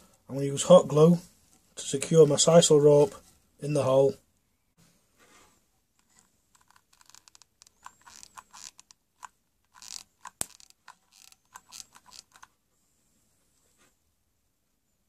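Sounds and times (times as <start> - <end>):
glue gun clicks and creaks: 6.0 - 12.5.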